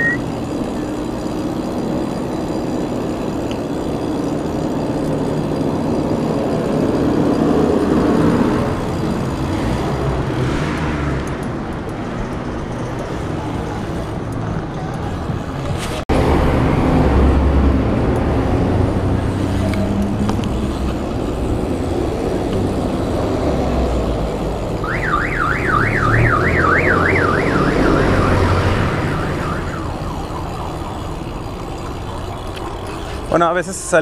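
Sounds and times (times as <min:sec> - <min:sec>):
electronic siren sweeping: 0:00.0 - 0:00.2, 0:19.4 - 0:34.0
street traffic: 0:00.0 - 0:34.0.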